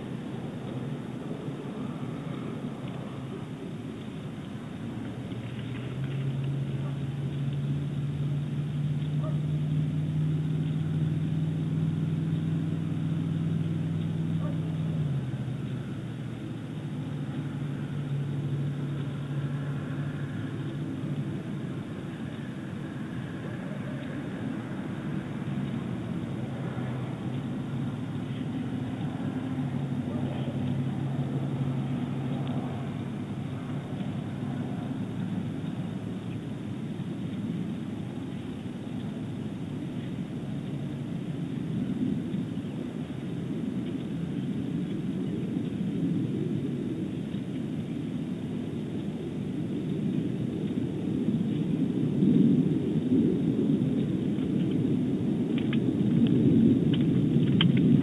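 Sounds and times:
distant engine droning: 0.0 - 58.0.

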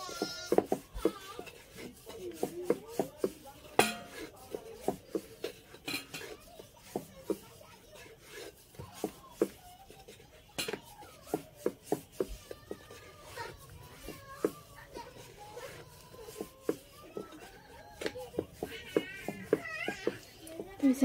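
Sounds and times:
rolling pin knocking on wooden board: 0.2 - 5.5, 15.7 - 20.7.

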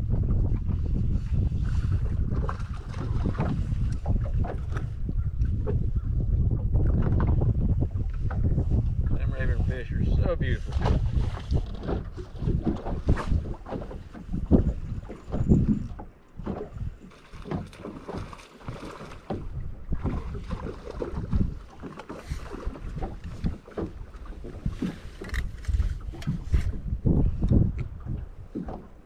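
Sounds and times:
waves slapping boat hull: 0.0 - 29.0
wind buffeting microphone: 0.0 - 29.0.

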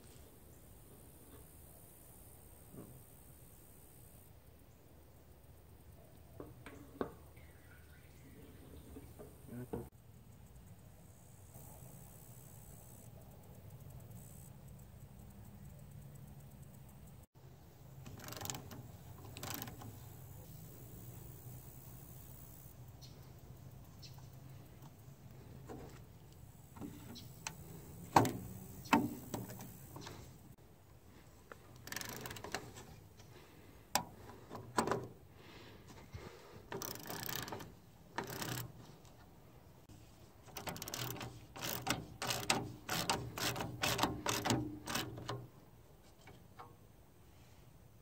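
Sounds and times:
socket ratchet clicking: 18.0 - 20.3, 31.7 - 32.9, 36.7 - 38.8, 40.4 - 45.5.

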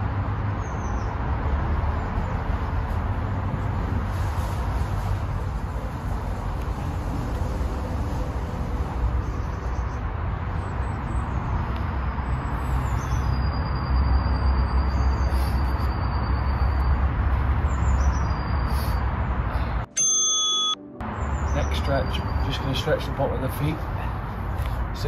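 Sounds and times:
faint thin high tone: 19.9 - 20.9
short high chirps: 19.9 - 21.0.

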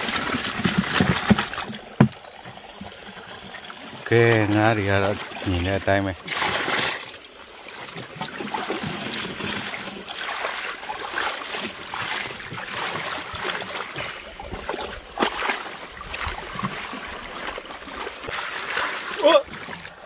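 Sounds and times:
water splashing and trickling: 0.0 - 20.0
loud splash: 4.0 - 7.2, 8.1 - 19.8.

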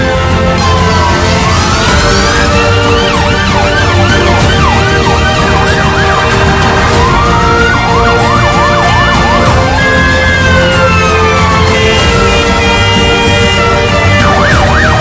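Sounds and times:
background music: 0.0 - 15.0
emergency vehicle siren: 0.0 - 15.0.

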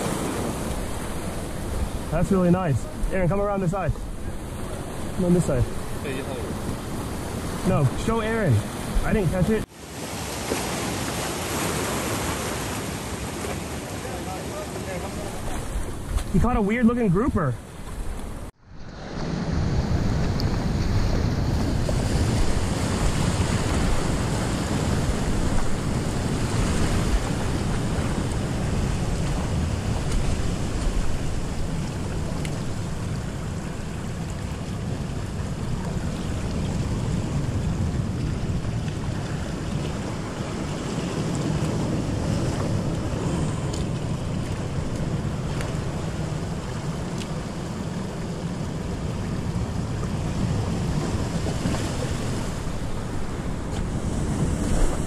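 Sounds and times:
surf washing over rocks: 0.0 - 55.0
wind noise on microphone: 17.6 - 48.0, 48.6 - 55.0.

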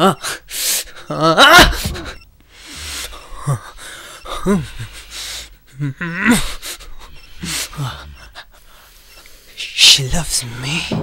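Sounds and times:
man sobbing: 0.0 - 2.2, 2.8 - 8.8.

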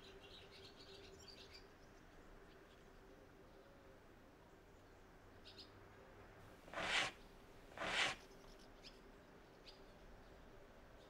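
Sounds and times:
small birds chirping: 0.0 - 3.7, 6.7 - 11.0
rushing swishes: 6.7 - 8.2.

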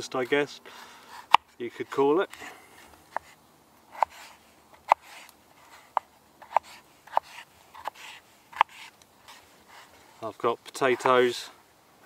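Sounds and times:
blade scraping: 0.8 - 10.0
knife slicing potato: 3.1 - 9.9.

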